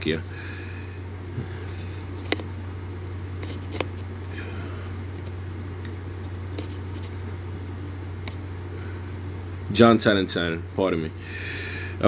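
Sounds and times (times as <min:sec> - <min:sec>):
steady low hum: 0:00.0 - 0:12.0
fingertips tapping touchscreen: 0:03.4 - 0:04.0, 0:06.5 - 0:07.1.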